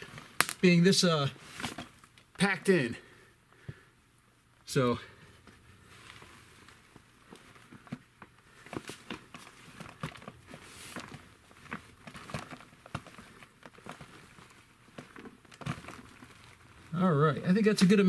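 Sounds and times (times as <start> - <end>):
worm castings rustling and crumbling: 8.2 - 18.0.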